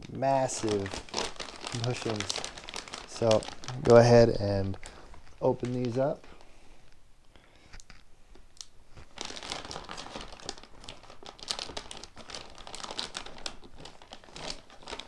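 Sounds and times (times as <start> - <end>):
plastic bag crinkling: 0.0 - 6.6, 8.6 - 15.0.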